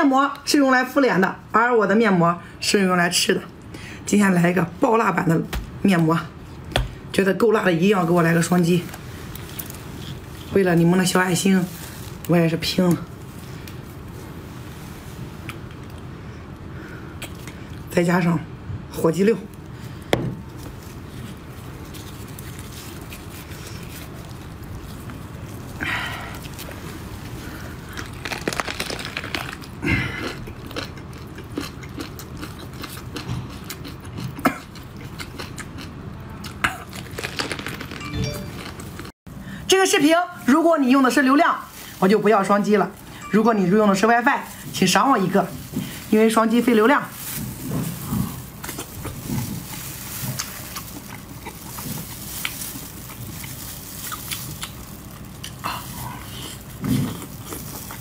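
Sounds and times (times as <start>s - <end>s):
wet squelching and tearing: 20.8s - 30.5s, 36.6s - 38.1s, 44.4s - 58.0s
biting and chewing: 26.4s - 39.1s, 47.1s - 58.0s
wet chewing and lip smacks: 52.4s - 55.6s.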